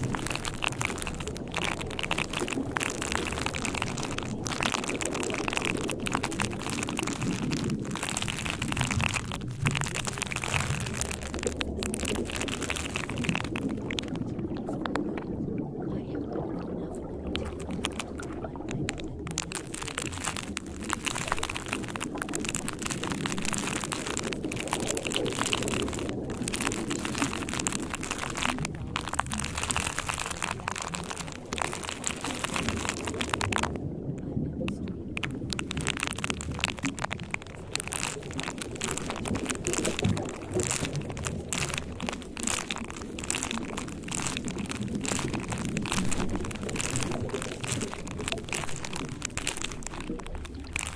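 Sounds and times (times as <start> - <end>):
rain-like hiss with patters: 0.0 - 50.9.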